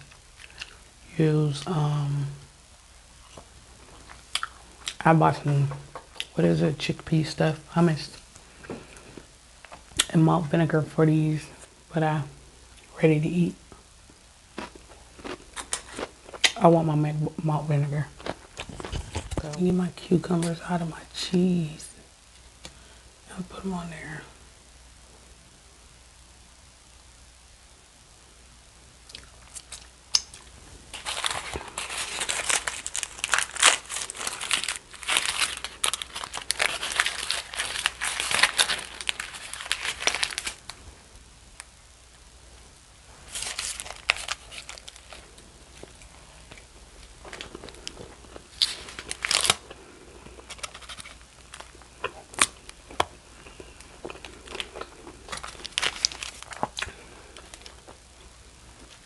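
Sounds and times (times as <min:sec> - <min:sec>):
aluminium foil crinkling: 0:29.4 - 0:40.8, 0:43.2 - 0:58.0.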